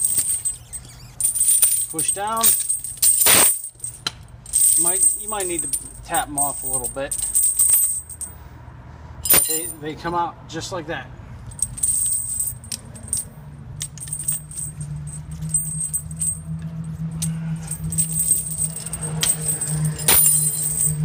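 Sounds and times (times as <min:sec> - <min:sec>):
steel chain links clinking: 0:00.0 - 0:08.4, 0:09.2 - 0:09.8, 0:11.5 - 0:21.0
sharp metal clank: 0:01.6 - 0:04.2, 0:09.2 - 0:09.8, 0:17.2 - 0:21.0.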